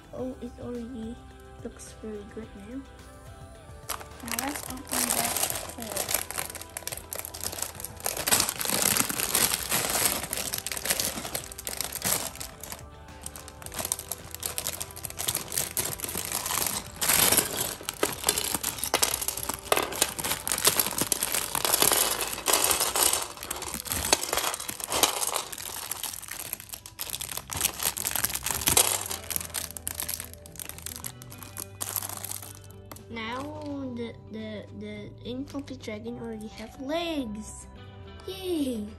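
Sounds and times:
background music: 0.0s - 38.9s
bricks emptied onto tray: 3.9s - 32.7s
plastic bag crinkling: 3.9s - 33.7s.

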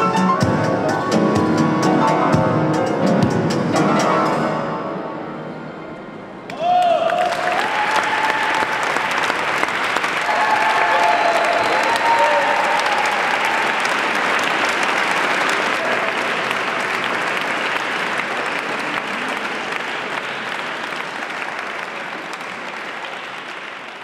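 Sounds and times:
large audience applauding: 6.8s - 24.0s.

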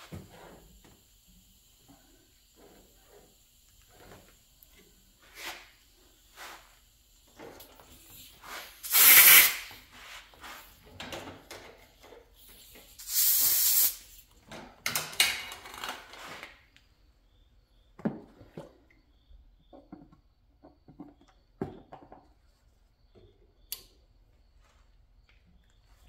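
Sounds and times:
hissing aerosol spray bursts: 5.2s - 7.2s, 8.0s - 10.8s, 12.6s - 14.3s.

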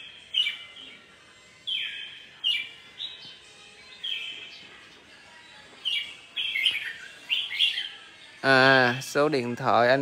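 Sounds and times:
bird whistled song: 0.0s - 5.0s, 5.8s - 8.2s.

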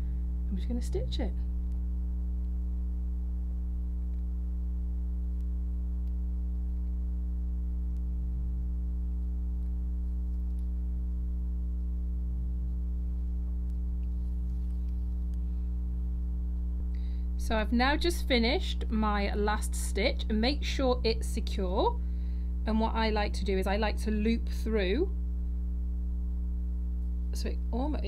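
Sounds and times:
low electrical hum: 0.0s - 28.0s
faint ticks: 5.3s - 7.0s, 7.8s - 8.2s.

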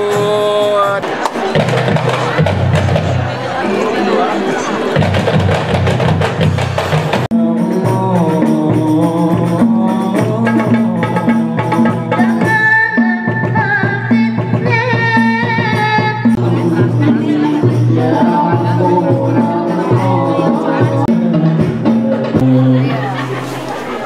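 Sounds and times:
hand drums beating fast: 0.0s - 3.3s, 4.9s - 22.8s
person singing into microphone: 7.3s - 23.3s.

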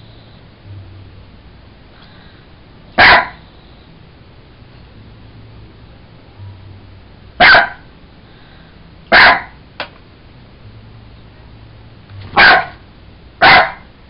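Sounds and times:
dog barking: 3.0s - 3.4s, 7.4s - 7.8s, 9.1s - 9.6s, 12.4s - 12.8s, 13.4s - 13.9s.

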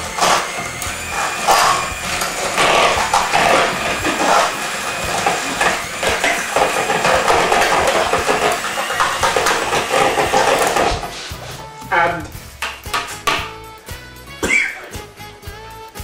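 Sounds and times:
electric hand mixer running: 0.0s - 11.4s.

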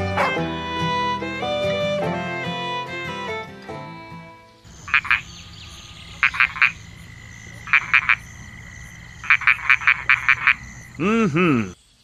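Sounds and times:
frogs croaking: 4.5s - 12.0s.

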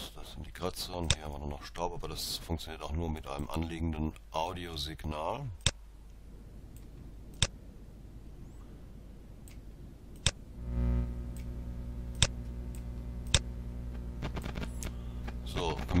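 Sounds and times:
low buzzy mains hum: 0.0s - 16.0s
vinyl clicks and pops: 9.5s - 16.0s.

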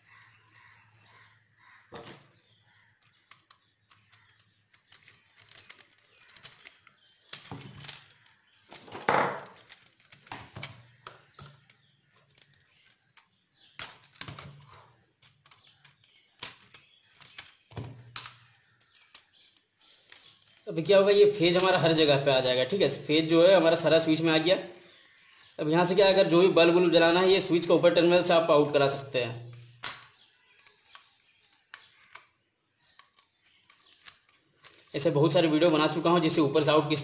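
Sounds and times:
tools clicking and tapping: 1.9s - 20.7s, 29.5s - 35.0s.

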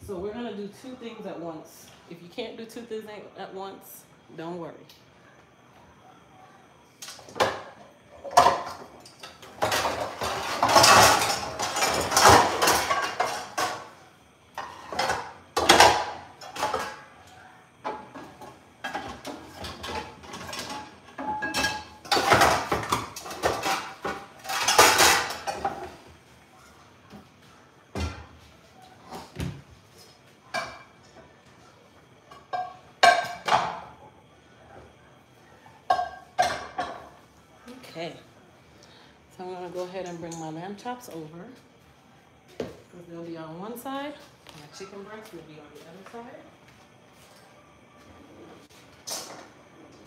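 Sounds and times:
pots and pans clattering: 7.0s - 26.1s, 27.9s - 28.4s, 29.1s - 31.2s, 32.2s - 34.0s, 35.8s - 37.2s, 48.6s - 50.0s.

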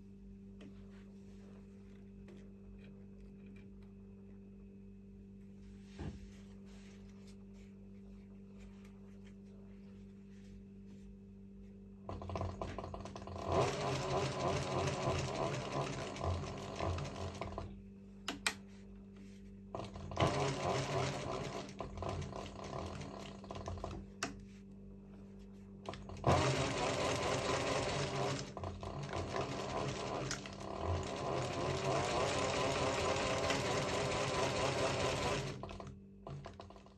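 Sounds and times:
sewing machine stitching rattle: 12.1s - 17.7s, 19.8s - 24.0s, 25.9s - 36.9s.

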